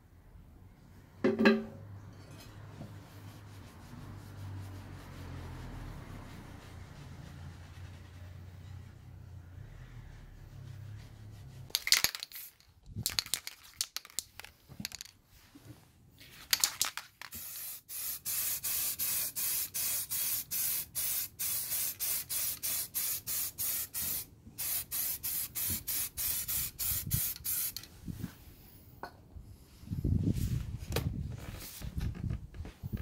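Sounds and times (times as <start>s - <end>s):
spray can hissing bursts: 17.3s - 27.9s.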